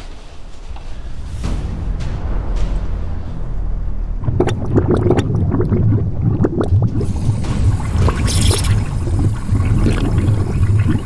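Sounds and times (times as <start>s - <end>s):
bubbling lava rumble: 3.6s - 11.0s.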